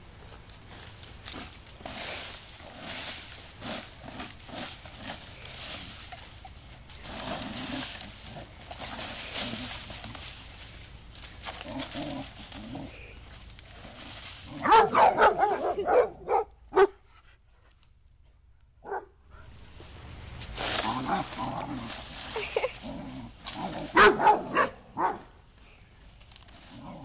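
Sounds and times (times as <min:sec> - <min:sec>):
rake tines scratching grass: 0:00.0 - 0:17.2, 0:19.3 - 0:27.0
puppy barks and yips: 0:14.6 - 0:17.0, 0:23.9 - 0:25.2.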